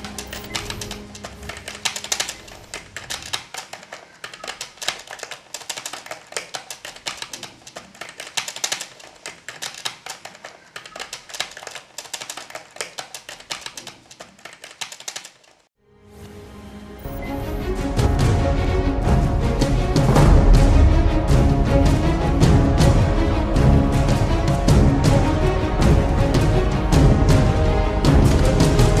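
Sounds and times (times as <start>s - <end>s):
music: 0.0s - 2.9s, 15.8s - 29.0s.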